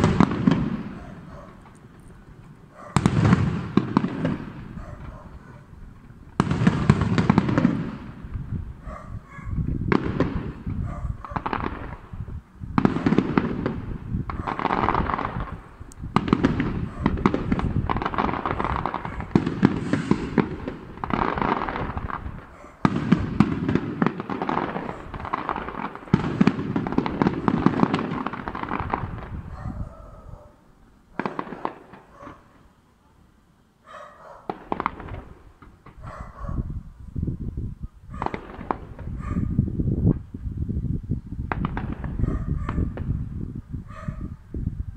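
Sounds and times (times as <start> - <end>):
rolling echo: 0.0 - 32.6.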